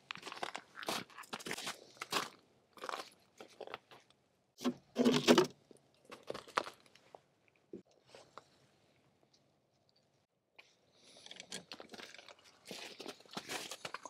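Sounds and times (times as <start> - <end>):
crunching and rustling handling: 4.7 - 7.3, 11.6 - 14.0.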